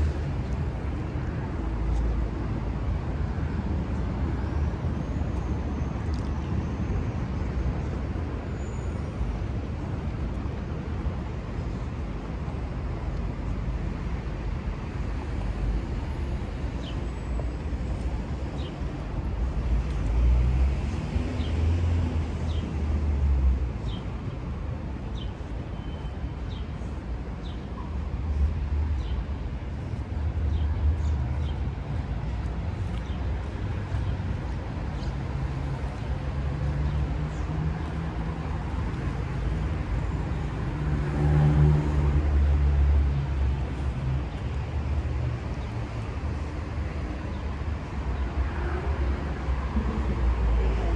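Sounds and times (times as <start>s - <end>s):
cars passing: 9.9s - 25.7s, 28.0s - 50.9s.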